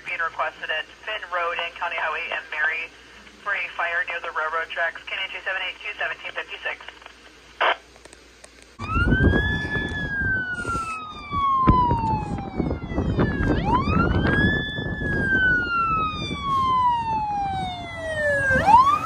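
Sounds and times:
fire truck siren wailing: 0:08.8 - 0:19.0.

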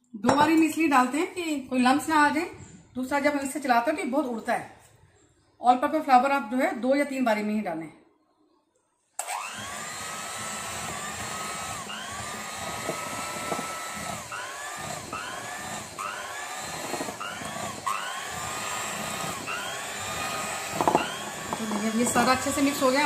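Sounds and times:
electric hand mixer whining: 0:09.2 - 0:23.0.

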